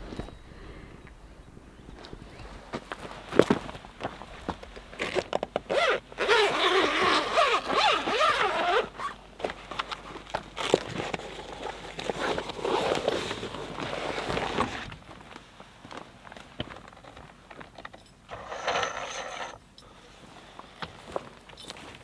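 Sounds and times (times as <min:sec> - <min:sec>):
zipper being pulled open: 0:05.0 - 0:09.2, 0:18.3 - 0:19.6.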